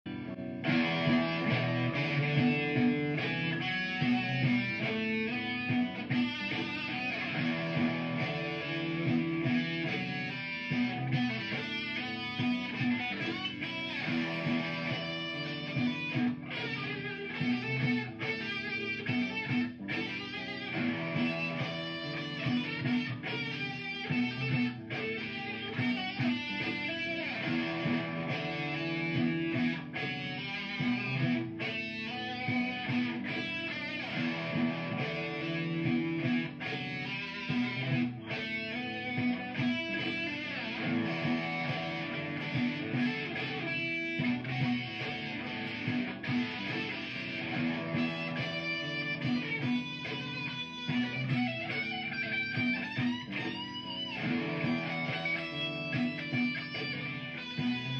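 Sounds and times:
electric guitar solo: 0.1 - 57.9
looped backing part: 0.1 - 57.9.

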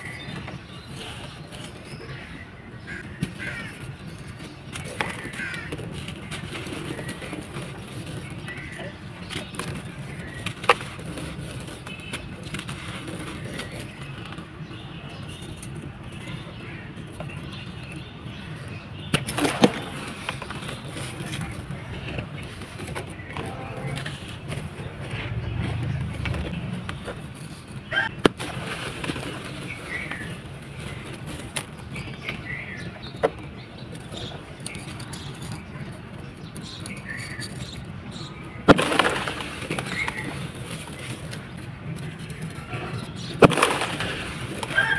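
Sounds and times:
low rumble: 23.6 - 27.9
sand-cement balls crumbling and crunching: 38.1 - 44.9.

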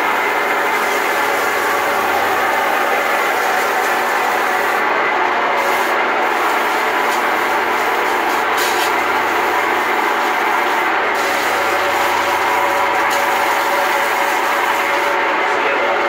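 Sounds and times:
drain cleaning machine running: 0.0 - 16.0.

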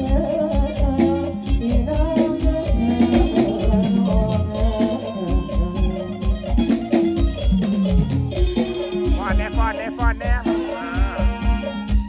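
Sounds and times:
man singing into a microphone: 0.0 - 6.5, 9.2 - 11.8
live band playing: 0.0 - 12.0.

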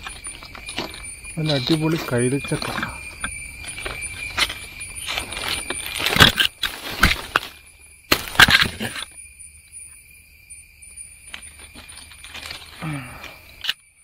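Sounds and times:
leaves rustling: 0.0 - 9.2, 11.1 - 13.6
crickets trilling: 0.0 - 14.0.

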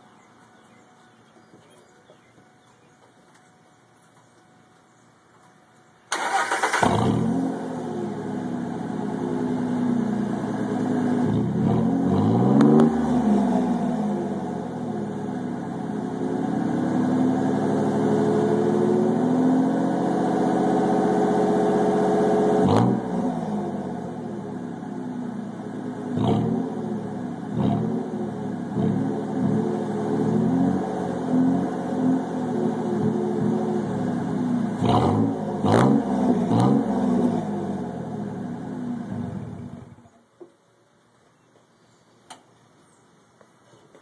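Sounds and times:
truck engine starting and revving: 6.1 - 24.4, 26.0 - 40.0.

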